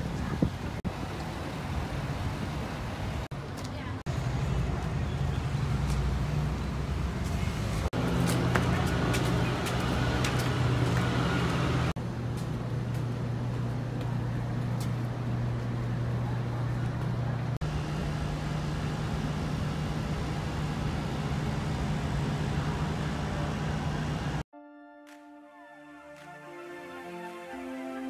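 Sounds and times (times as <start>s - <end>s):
low mechanical hum: 6.8s - 24.4s.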